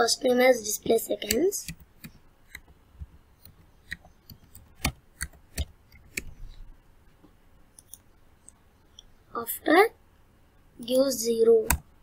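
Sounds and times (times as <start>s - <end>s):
keyboard key clicks: 3.4s - 6.3s.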